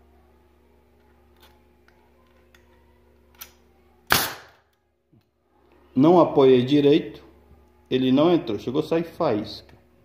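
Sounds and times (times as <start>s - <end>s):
pneumatic nailer firing: 4.1s - 4.6s.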